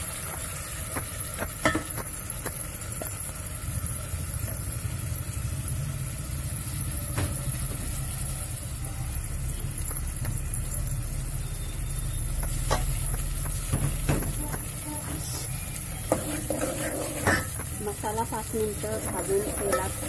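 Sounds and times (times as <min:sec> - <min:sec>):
steel jar knocking on pot: 0:01.4 - 0:02.6
paste scraping: 0:16.0 - 0:17.6.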